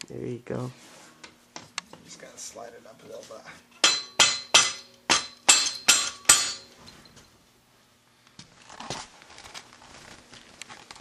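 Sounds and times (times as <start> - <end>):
hammer knocking on metal: 3.8 - 6.7.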